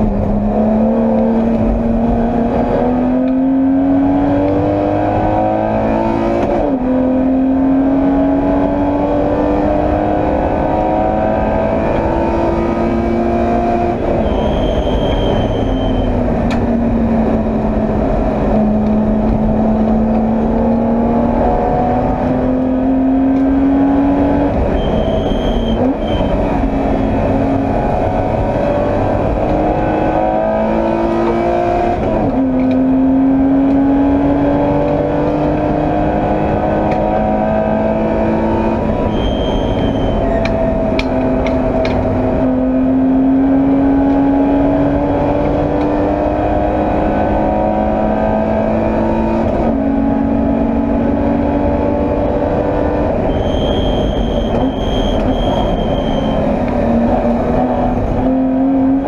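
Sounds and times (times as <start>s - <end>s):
race car engine revving: 0.0s - 59.0s
brief high tones: 14.2s - 16.2s, 39.1s - 40.4s, 53.3s - 56.4s.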